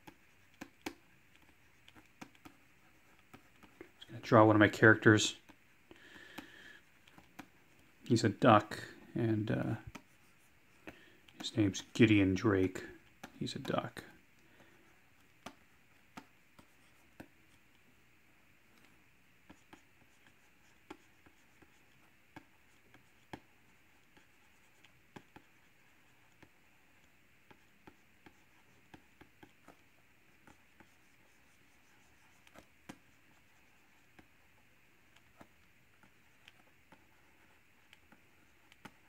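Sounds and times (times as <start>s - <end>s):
pen nib tapping on screen: 0.0s - 2.6s
background hiss: 0.0s - 39.0s.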